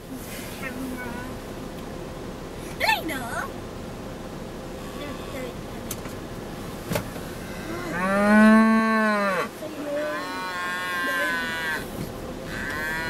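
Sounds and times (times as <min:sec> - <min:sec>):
cattle mooing: 0:07.4 - 0:13.0.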